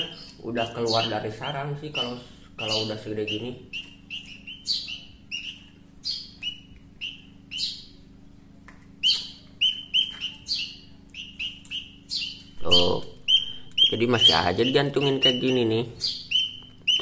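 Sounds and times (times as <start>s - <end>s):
nestling birds chirping: 0.0s - 17.0s.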